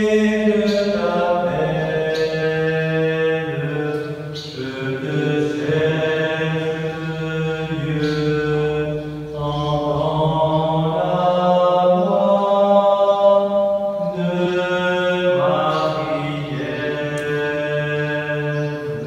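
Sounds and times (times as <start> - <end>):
voices singing a hymn chant: 0.0 - 19.0.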